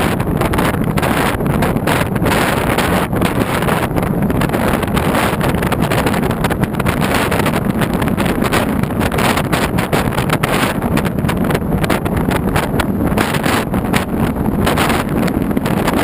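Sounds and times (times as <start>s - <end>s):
car road and engine noise: 0.0s - 16.0s
wind rushing across microphone: 0.0s - 16.0s.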